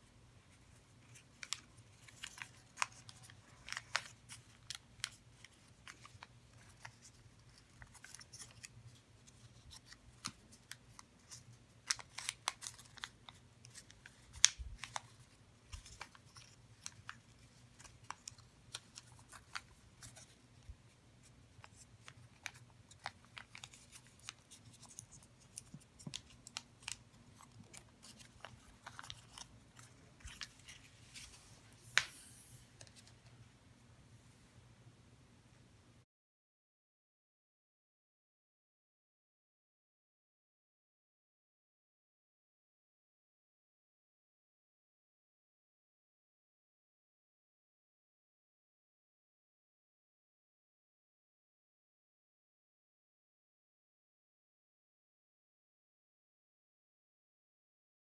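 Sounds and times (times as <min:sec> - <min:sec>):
paper crinkling: 0:00.5 - 0:33.3.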